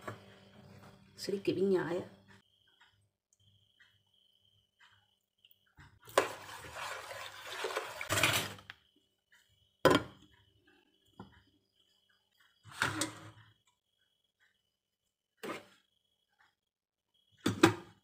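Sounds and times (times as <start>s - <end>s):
kitchenware clattering: 6.1s - 8.6s.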